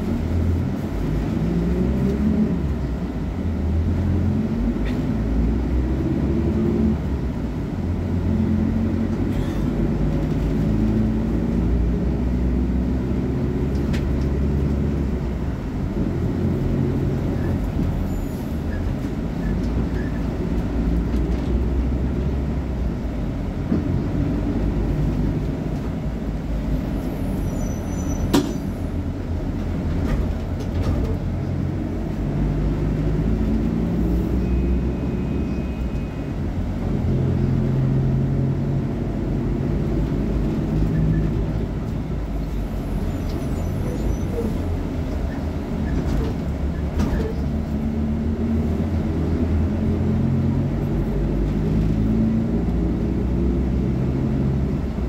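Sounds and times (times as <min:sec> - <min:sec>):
bus diesel engine idling: 0:07.1 - 0:10.2, 0:39.9 - 0:47.8.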